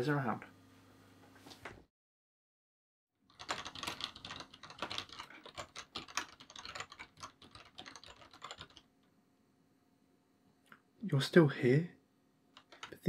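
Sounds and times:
fast typing on keyboard: 3.2s - 8.9s, 12.5s - 13.0s.

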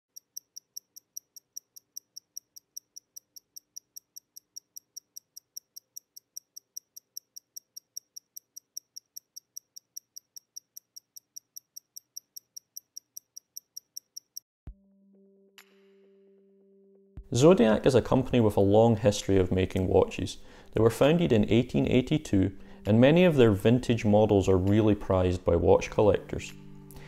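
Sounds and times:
watch ticking: 0.1s - 14.5s.

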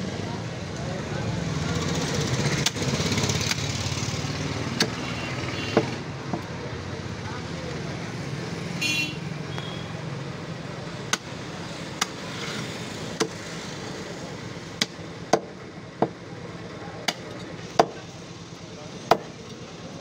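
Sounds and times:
cleaver chopping bone on wood: 4.8s - 5.0s, 13.2s - 13.4s, 14.8s - 16.2s, 17.0s - 18.0s, 19.1s - 19.3s.

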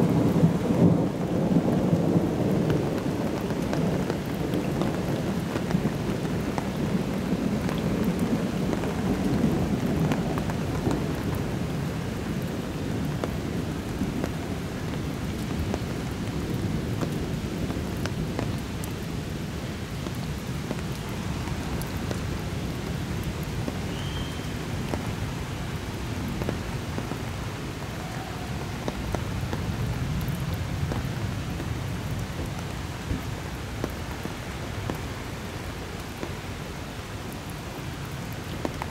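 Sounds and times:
thunder rumbling: 0.0s - 18.8s
heavy rain falling: 0.0s - 38.9s.

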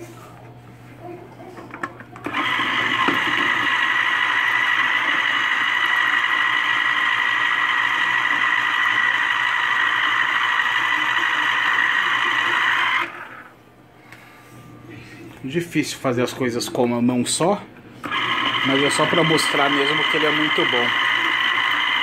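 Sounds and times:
electric citrus juicer motor whine: 2.2s - 13.6s, 18.0s - 22.0s.

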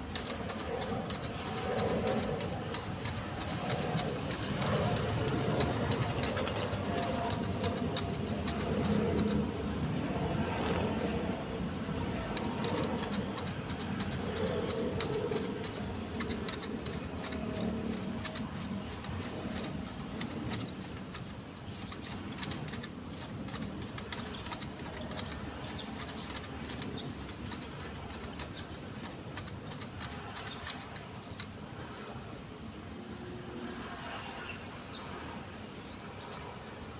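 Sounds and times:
hand shears snipping twigs: 0.0s - 9.5s, 12.2s - 32.1s.

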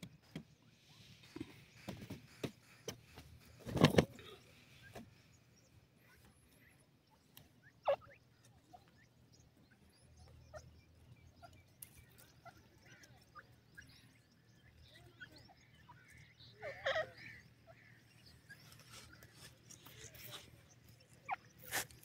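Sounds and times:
francolins clucking calls: 6.0s - 22.0s.

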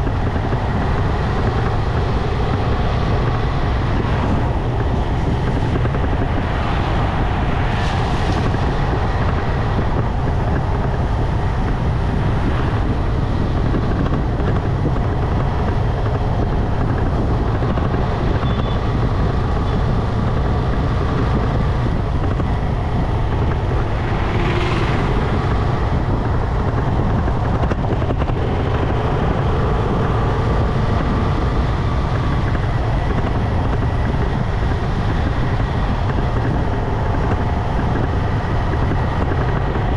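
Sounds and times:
motorcycle road noise: 0.0s - 39.9s
wind rumble on microphone: 0.0s - 39.9s.

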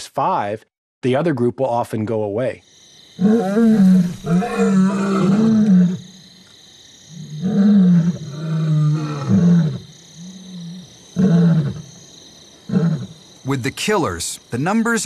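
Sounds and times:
lion roaring: 3.2s - 6.1s, 7.2s - 11.8s.

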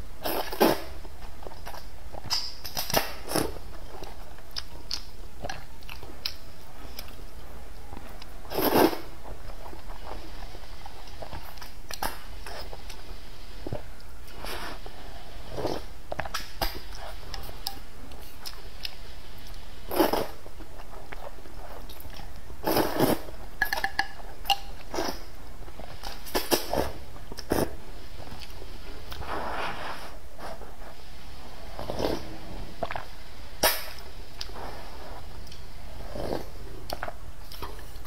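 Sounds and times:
slurping noodles: 8.5s - 9.1s, 19.9s - 20.4s, 22.6s - 23.3s, 29.1s - 33.8s, 34.4s - 36.7s
slurping broth: 8.5s - 9.2s, 19.5s - 20.4s, 21.6s - 23.8s, 24.9s - 37.1s.

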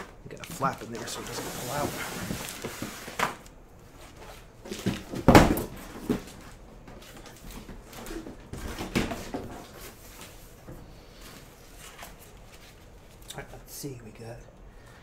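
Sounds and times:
cardboard box scraping and rustling: 1.0s - 3.3s.

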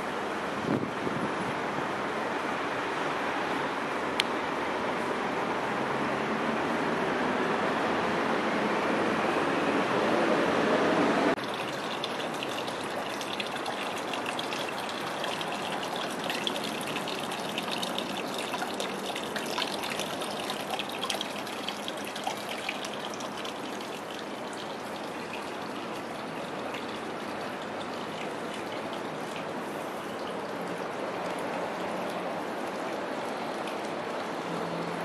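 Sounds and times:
street noise: 0.0s - 35.0s
water trickling into stone basin: 11.4s - 35.0s.

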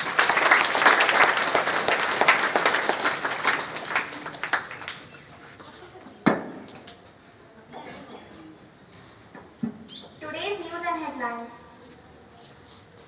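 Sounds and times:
audience clapping: 0.0s - 5.4s.

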